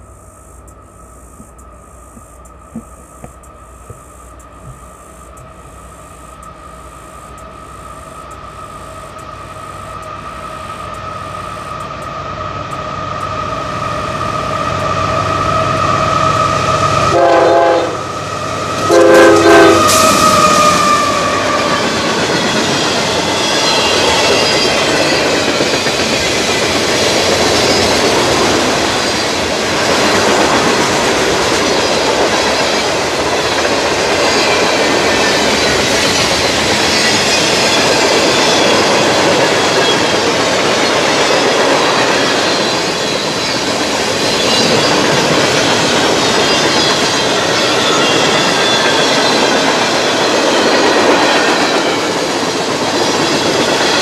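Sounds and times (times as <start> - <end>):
train wheels rumbling on rail: 0.0 - 54.0
high wheel squeal: 4.8 - 17.2, 18.1 - 54.0.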